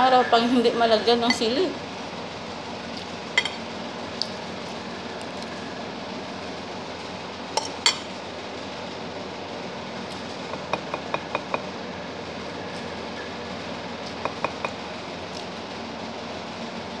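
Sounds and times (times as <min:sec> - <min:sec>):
steady background hum: 0:00.0 - 0:17.0
metal spoon clinking on a plate: 0:03.4 - 0:03.6, 0:07.6 - 0:08.1.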